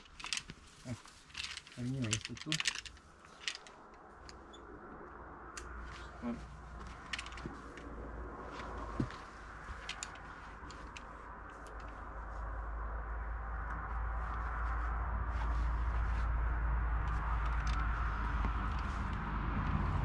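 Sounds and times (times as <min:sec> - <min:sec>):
climbing gear clicking: 0:00.0 - 0:12.3, 0:17.0 - 0:20.0
low outdoor rumble: 0:00.0 - 0:20.0.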